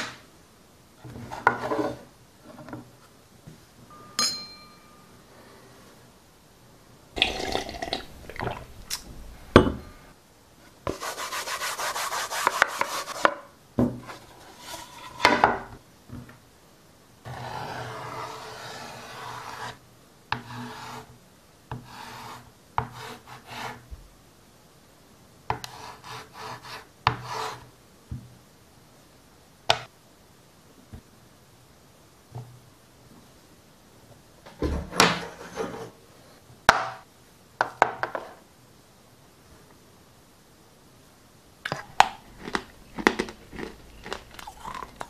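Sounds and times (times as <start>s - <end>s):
chalk scratching on chalkboard: 10.9s - 13.4s, 14.1s - 15.3s, 17.3s - 19.8s, 20.4s - 21.1s, 21.7s - 23.8s, 25.5s - 27.7s
chalk tapping on board: 10.9s - 13.4s, 25.5s - 27.6s.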